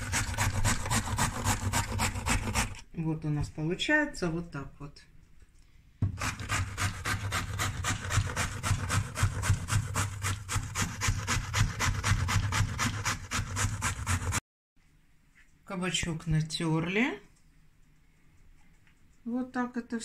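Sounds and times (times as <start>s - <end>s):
zucchini grated on coarse grater: 0.0s - 2.8s, 6.1s - 14.4s.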